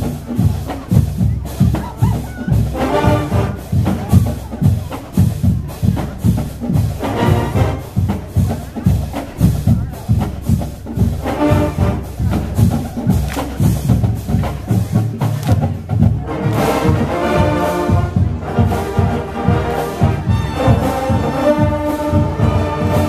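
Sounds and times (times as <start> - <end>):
brass playing: 0.0 - 23.0
drumline beat: 0.0 - 23.0.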